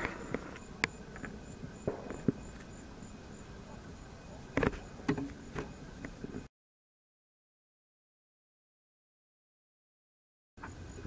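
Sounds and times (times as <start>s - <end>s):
insects chirping: 0.0s - 6.5s, 10.6s - 11.0s.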